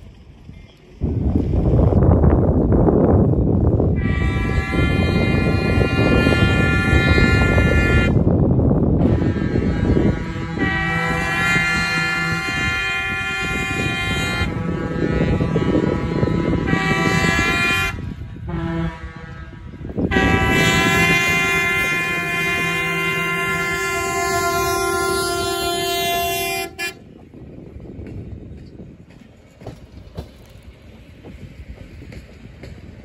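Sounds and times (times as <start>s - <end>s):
train air horn blasts: 4.0s - 8.3s, 9.0s - 27.2s.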